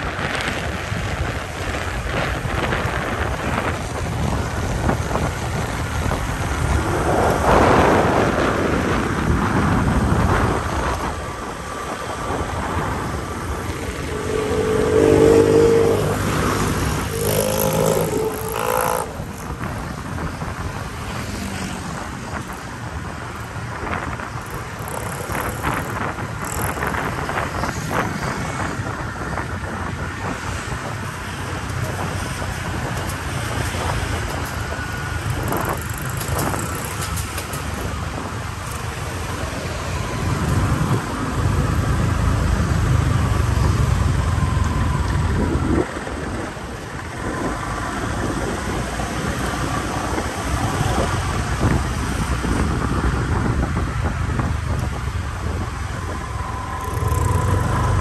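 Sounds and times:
street traffic: 0.0s - 58.0s
wind rush: 0.0s - 58.0s
motorbike engine: 12.7s - 28.2s, 33.1s - 39.7s, 56.5s - 58.0s.

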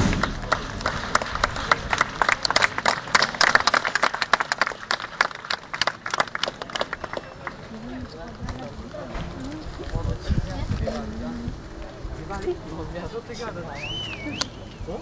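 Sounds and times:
crowd clapping: 0.0s - 9.0s.

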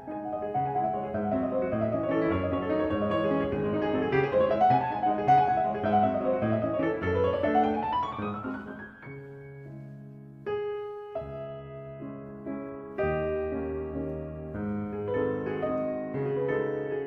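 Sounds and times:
solo piano music: 0.0s - 17.0s.

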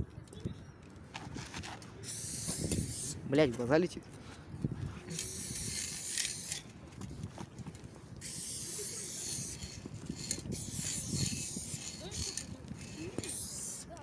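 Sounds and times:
spray paint can hissing: 2.0s - 3.2s, 5.1s - 6.6s, 8.2s - 14.0s.

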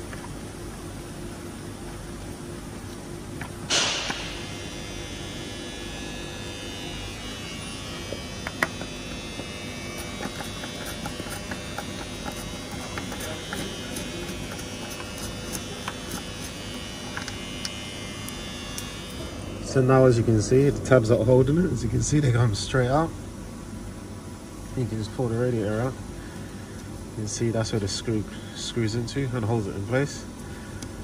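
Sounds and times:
steady buzzing hum: 0.0s - 31.0s
screwdriver clicks and taps: 8.4s - 8.9s, 17.1s - 17.7s.

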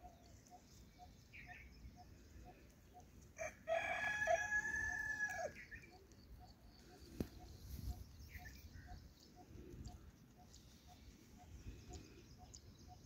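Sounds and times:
faint bird chirps: 0.0s - 3.4s, 5.5s - 13.0s
rooster crowing: 3.4s - 5.6s.

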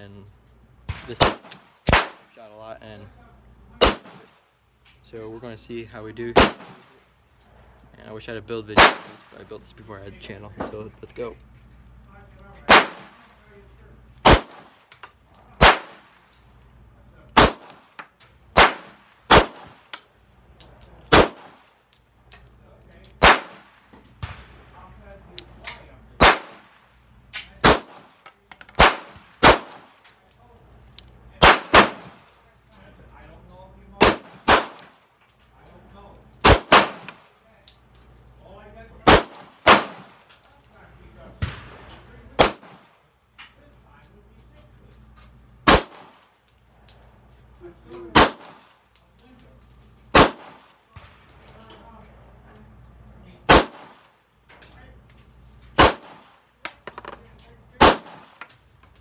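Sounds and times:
pistol shots: 0.9s - 2.3s, 3.8s - 4.4s, 6.4s - 7.0s, 8.8s - 9.3s, 12.7s - 13.3s, 14.2s - 15.0s, 15.6s - 16.2s, 17.4s - 20.0s, 21.1s - 21.7s, 23.2s - 24.6s, 26.2s - 30.1s, 31.4s - 32.3s, 34.0s - 35.0s, 36.4s - 37.3s, 39.0s - 40.3s, 41.4s - 43.0s, 45.6s - 46.2s, 48.1s - 48.7s, 50.1s - 51.0s, 53.5s - 54.1s, 55.8s - 56.4s, 57.8s - 58.4s.

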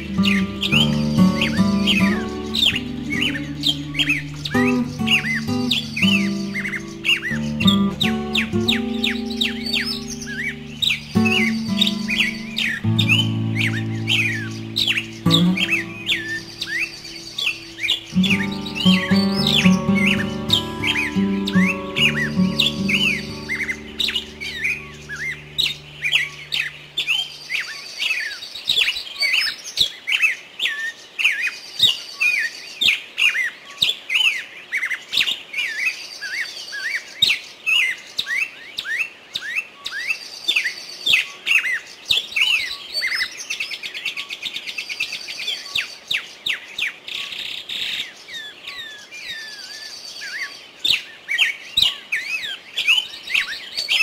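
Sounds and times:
soft background music: 0.0s - 27.2s
bird trill: 0.0s - 28.4s
small birds chirping: 0.0s - 54.0s.

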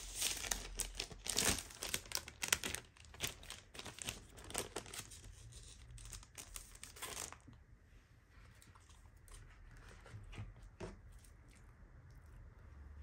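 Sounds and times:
plastic sleeve crinkling: 0.0s - 7.6s.

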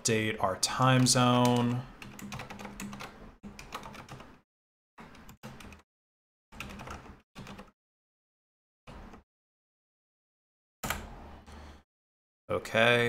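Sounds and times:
typing on computer keyboard: 0.9s - 4.3s, 5.1s - 5.8s, 6.6s - 7.7s.

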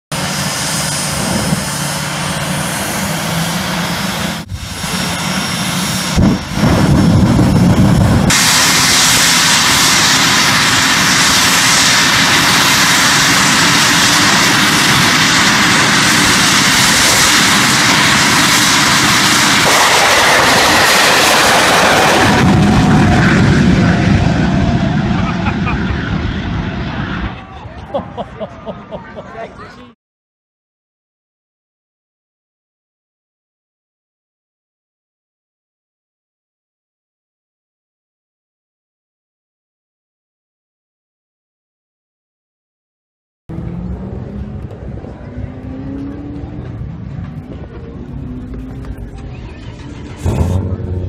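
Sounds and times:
jet turbine engine roaring: 0.1s - 29.9s, 43.5s - 51.0s.

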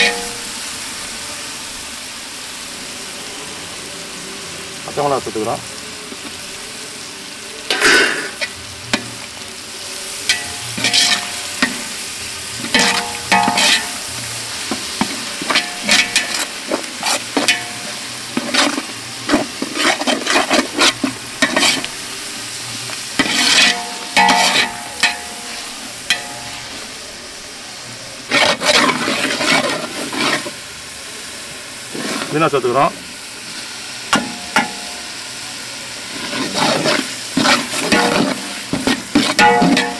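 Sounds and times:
metal ladle scraping pot: 0.0s - 0.5s, 10.3s - 12.0s, 12.6s - 22.0s, 23.1s - 26.9s, 28.2s - 30.6s, 36.1s - 39.9s
frying sizzle: 0.0s - 39.9s.

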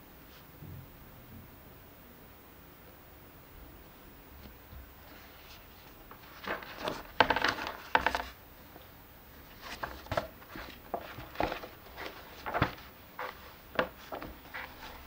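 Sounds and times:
book pages turning: 5.1s - 8.4s, 9.4s - 15.0s.

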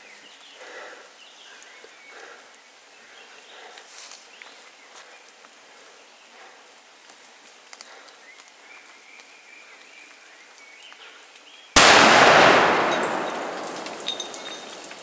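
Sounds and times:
steady outdoor hiss: 0.0s - 15.0s
small ticks: 3.6s - 8.6s.

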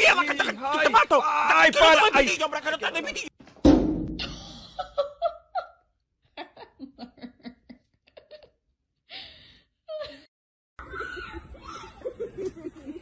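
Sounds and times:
outdoor background noise: 10.8s - 13.0s.

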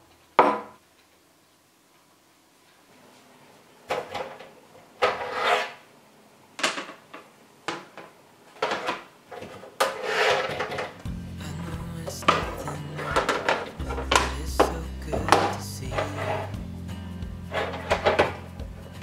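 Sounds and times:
boards scraping against case: 5.0s - 5.8s, 8.7s - 11.0s.

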